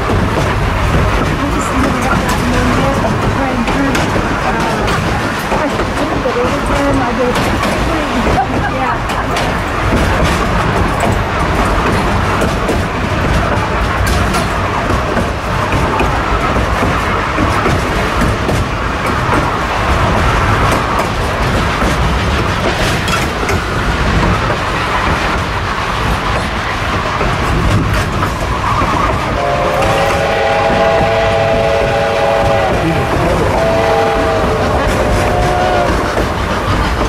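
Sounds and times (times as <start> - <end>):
train wheels clattering on rails: 0.0 - 37.0
steam locomotive whistle: 29.3 - 36.1.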